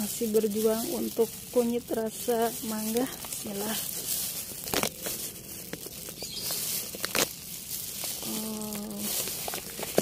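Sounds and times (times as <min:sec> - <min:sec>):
glove rustling in soil: 0:00.0 - 0:10.0
roots snapping: 0:00.0 - 0:10.0
person humming: 0:08.2 - 0:09.3.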